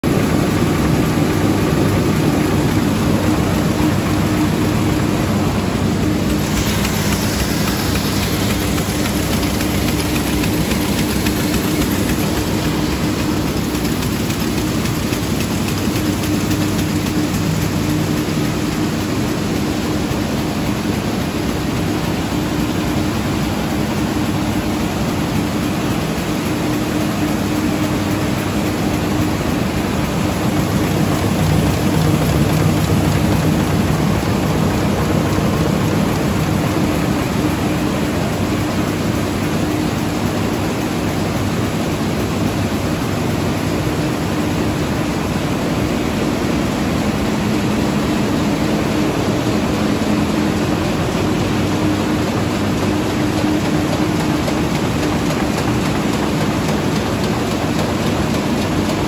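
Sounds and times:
machinery hum: 0.0s - 59.0s
air hissing: 6.0s - 15.3s.

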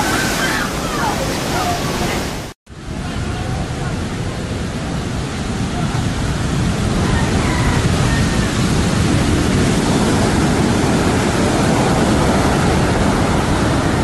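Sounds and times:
ocean waves breaking: 0.0s - 14.0s.

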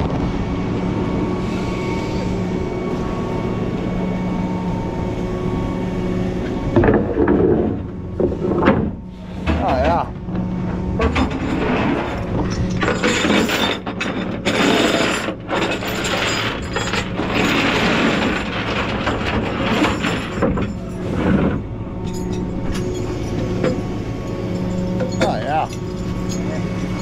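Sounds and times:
steady low hum: 0.0s - 27.0s
metal rigging ratcheting and clanking: 11.0s - 27.0s.

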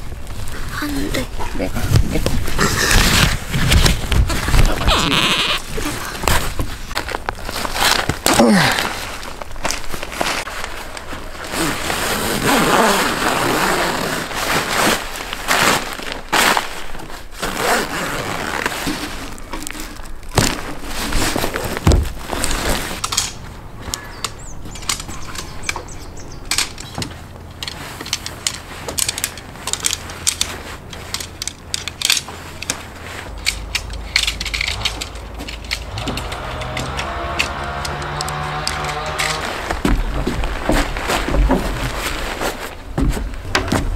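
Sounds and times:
tent fabric rustling: 0.0s - 23.2s, 27.1s - 43.9s
tent poles clicking and clacking: 0.0s - 43.9s
tent pole sliding out of sleeve: 2.6s - 19.9s, 27.7s - 39.9s.

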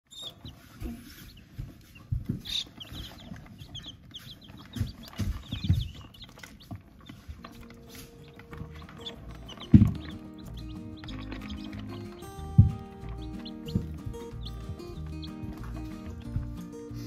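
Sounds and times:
chicks peeping: 0.1s - 17.0s
low thumps: 7.7s - 17.0s.

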